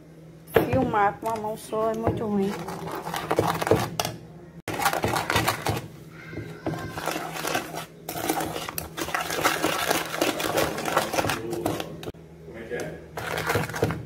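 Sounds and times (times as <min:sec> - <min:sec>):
spoon scraping metal saucepan: 0:06.8 - 0:12.1.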